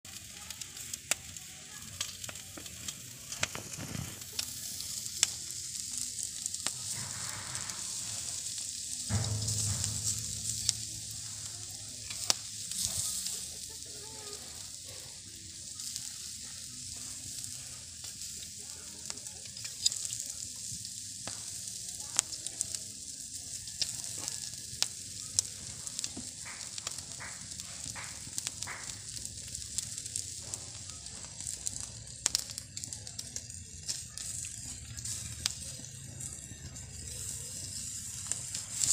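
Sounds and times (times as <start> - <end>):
meat sizzling on a grill: 0.1 - 38.9
low rumble: 9.1 - 12.7.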